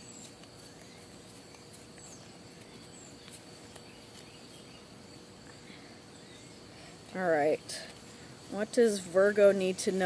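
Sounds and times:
faint bird chirps: 0.0 - 7.0
high insect drone: 0.0 - 10.0.

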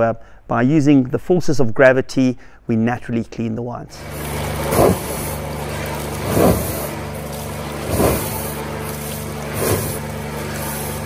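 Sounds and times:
liquid gushing from barrel: 4.0 - 11.0
machine hum: 4.0 - 11.0.

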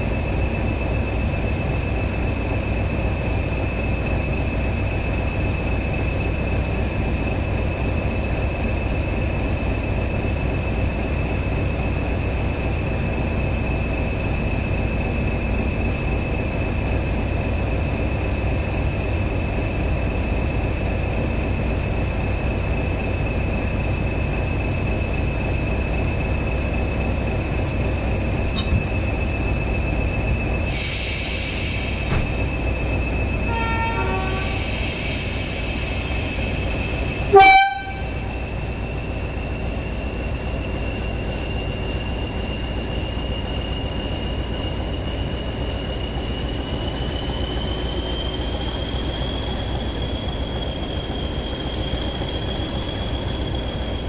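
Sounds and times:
diesel locomotive engine rumbling: 0.0 - 54.0
train wheels on rails: 0.0 - 54.0
burst of hiss: 30.7 - 32.5, 34.3 - 36.6.

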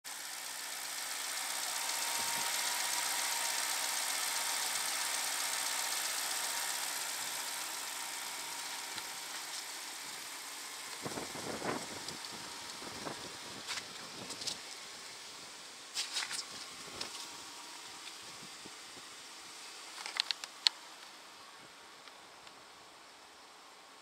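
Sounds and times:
car engine idling: 0.1 - 24.0
soft scuffs: 15.9 - 17.4.

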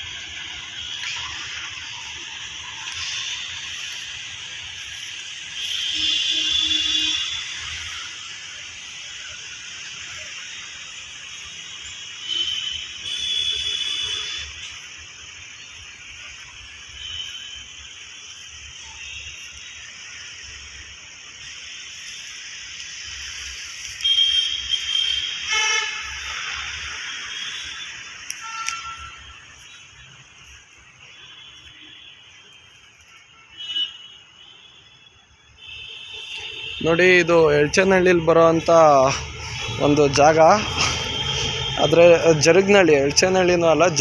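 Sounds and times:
road traffic: 0.0 - 44.0
vehicle horns honking: 4.9 - 8.1, 11.8 - 14.9, 16.9 - 18.0, 23.8 - 44.0.

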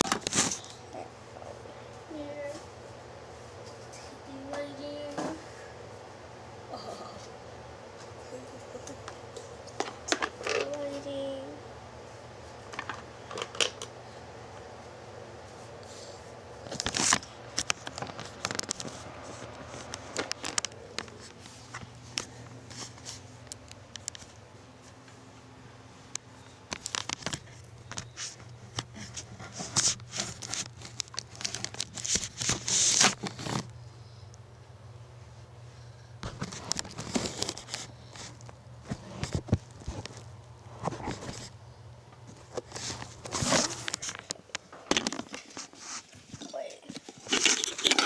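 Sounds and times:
crinkling and rustling handling: 0.0 - 5.4, 14.6 - 34.4, 36.2 - 48.0.

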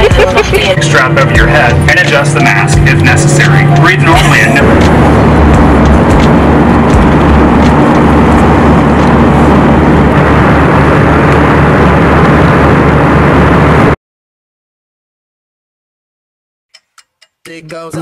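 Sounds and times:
jet engine cabin rumble: 0.0 - 14.0
low drone: 0.0 - 14.0.

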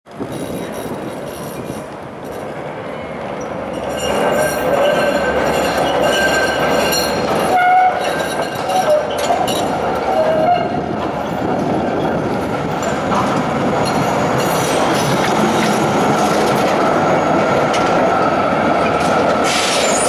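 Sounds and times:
tram rumbling: 0.1 - 20.0
tram wheels squealing: 0.1 - 20.0.

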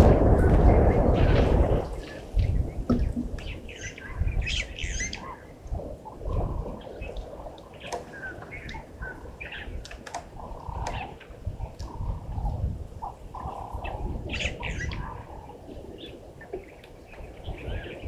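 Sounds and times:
low rumbling: 0.0 - 7.1
wild birds chirping and squawking: 0.0 - 18.0.

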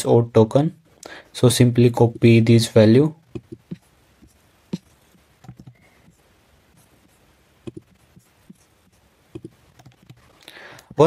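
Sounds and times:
computer mouse clicks: 3.3 - 3.8, 7.6 - 7.9, 9.3 - 10.2.

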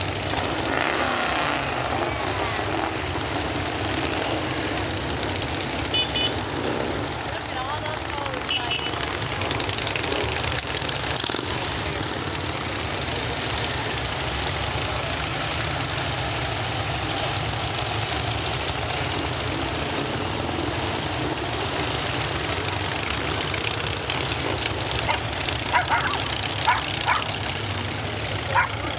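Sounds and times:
motorcycles rumbling past: 0.0 - 28.9
dog barking: 25.0 - 27.4, 28.5 - 28.9.

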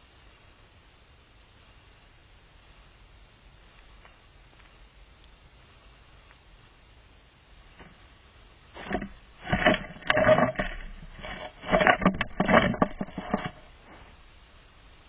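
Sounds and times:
scraping and rubbing knocks on camera: 8.8 - 14.2.

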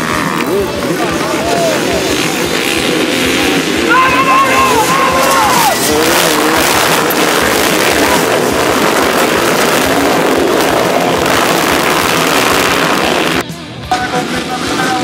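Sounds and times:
motorcycle engines revving: 0.0 - 15.0.

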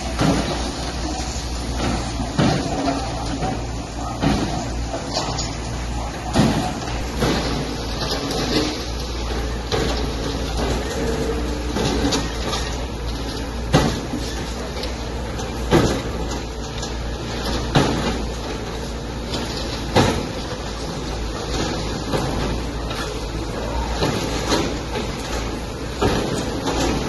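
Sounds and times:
excavator low rumble: 0.0 - 27.0.

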